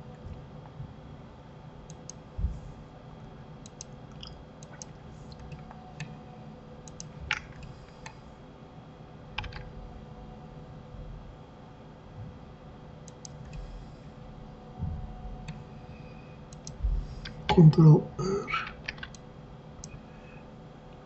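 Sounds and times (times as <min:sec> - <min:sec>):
faint steady hum: 0:00.0 - 0:21.0
keyboard and mouse clicking: 0:01.9 - 0:02.2, 0:03.6 - 0:04.0, 0:04.6 - 0:06.1, 0:06.8 - 0:08.2, 0:09.4 - 0:09.7, 0:13.1 - 0:13.6, 0:16.5 - 0:17.4, 0:18.6 - 0:19.2.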